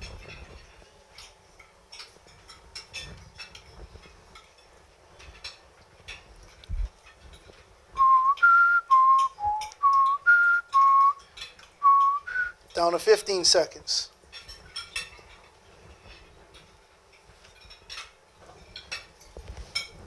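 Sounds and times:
cutlery clinking on plates: 0.0s - 7.8s, 9.2s - 12.2s, 14.1s - 20.0s
man whistling a tune: 8.0s - 11.2s, 11.8s - 12.6s.

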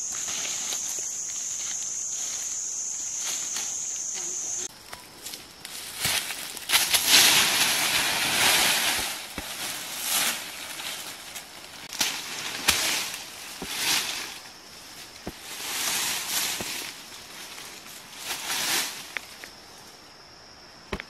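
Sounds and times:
dry leaves crunching underfoot: 0.0s - 19.7s
twigs snapping: 4.8s - 14.4s.

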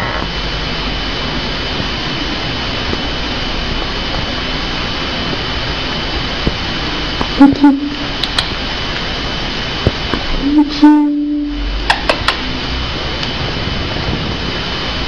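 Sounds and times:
steady hiss: 0.0s - 15.0s
person making held vocal sound: 7.4s - 8.0s, 10.4s - 11.7s
sharp clicks: 8.2s - 8.6s, 11.9s - 12.4s.

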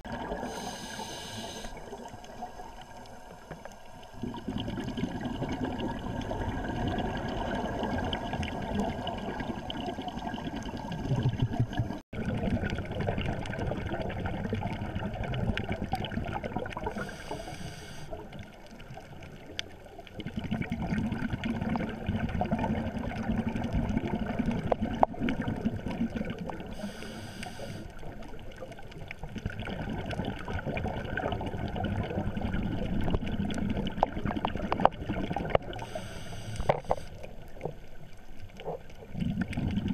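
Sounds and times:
gurgling exhaust bubbles underwater: 0.0s - 39.9s
regulator inhalation hiss: 0.4s - 1.9s, 17.0s - 18.2s, 26.8s - 27.9s, 35.8s - 37.2s.

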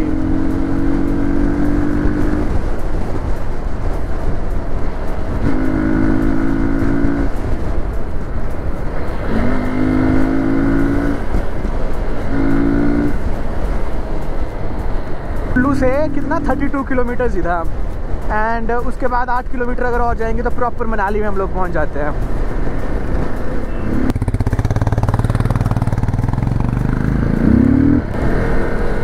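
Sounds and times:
motorcycle engine and road noise: 0.0s - 29.0s
pitched droning tone: 12.2s - 13.3s, 15.2s - 17.2s.

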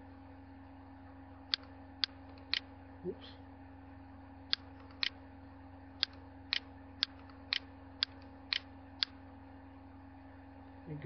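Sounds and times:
low electrical hum: 0.0s - 11.0s
computer mouse clicking: 1.5s - 2.6s, 4.5s - 5.2s, 6.0s - 9.2s.

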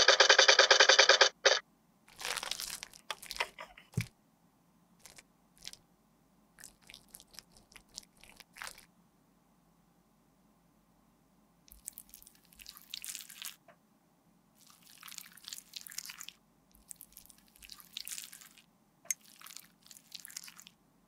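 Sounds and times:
toy motor pulsing buzz: 0.0s - 1.6s
crunchy rustle of handling: 2.1s - 4.1s, 5.0s - 5.8s.

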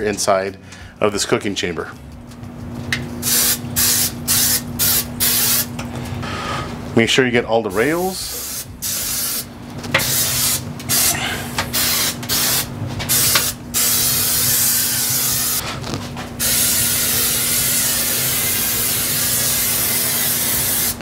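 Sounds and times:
aerosol spray hissing: 11.8s - 15.6s, 16.4s - 21.0s.

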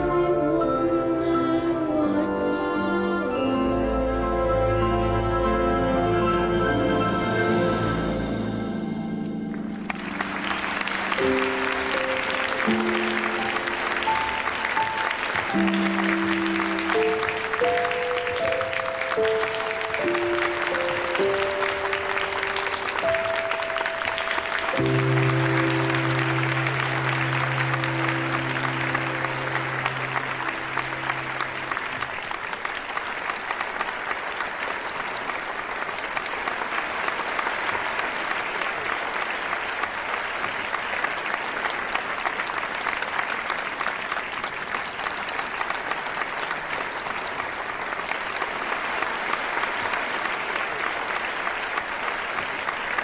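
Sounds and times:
held music chord: 0.0s - 32.0s
audience applauding: 9.2s - 53.0s.

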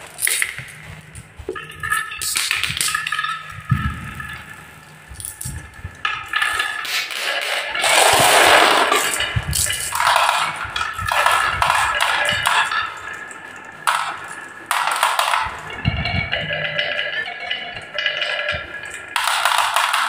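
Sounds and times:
marbles rolling on wooden track: 0.0s - 20.0s
marbles dropping into plastic truck: 6.3s - 12.9s, 13.9s - 16.0s, 18.1s - 20.0s.

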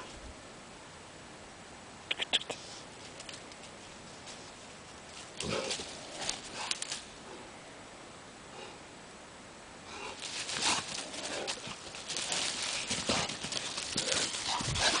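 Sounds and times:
dog paws scuffling in leaves: 10.0s - 15.0s.

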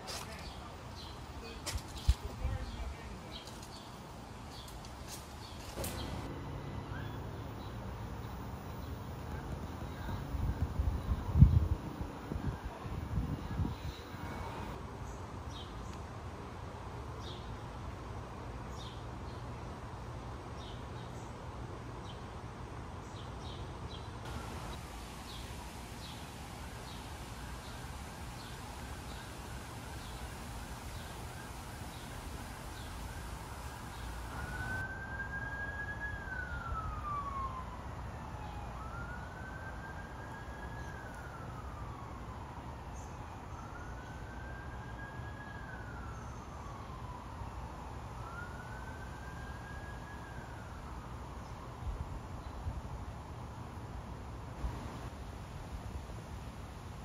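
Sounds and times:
siren wailing: 26.6s - 42.3s, 48.2s - 51.0s.

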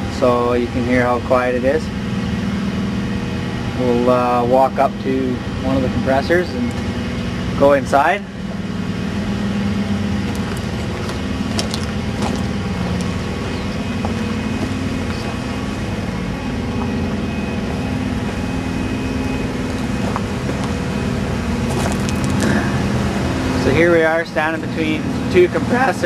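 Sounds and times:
compressors humming: 0.0s - 26.0s
footsteps on gravel: 10.0s - 17.3s, 18.1s - 22.8s.

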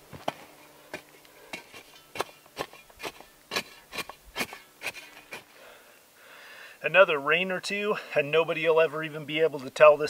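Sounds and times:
shovel scraping dry dirt: 0.0s - 5.6s.

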